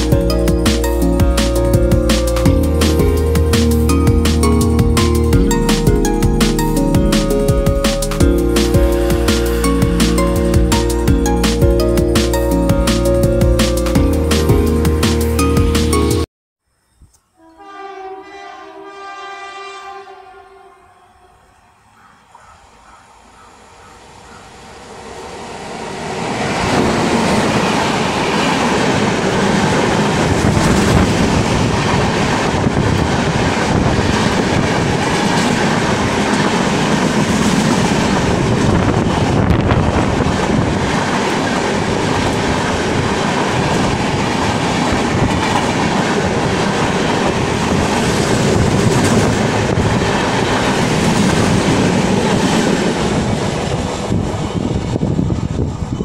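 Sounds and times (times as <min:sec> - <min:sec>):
train passing at speed: 0:00.0 - 0:16.2, 0:17.5 - 0:56.0.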